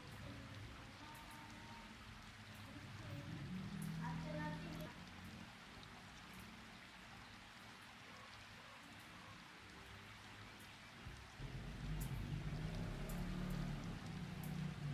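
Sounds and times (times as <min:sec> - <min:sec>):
faint steady hiss: 0:00.0 - 0:14.9
weak low hum: 0:11.4 - 0:14.9.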